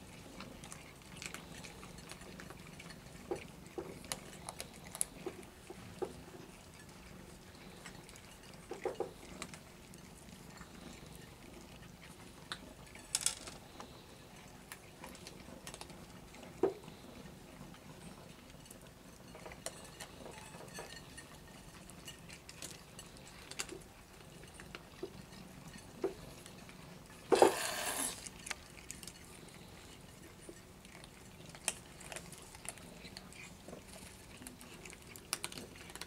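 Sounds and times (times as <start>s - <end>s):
cats crunching dry kibble: 0.0s - 36.0s
kibble clinking on a ceramic plate: 0.6s - 5.4s, 6.0s - 11.3s, 18.3s - 26.7s.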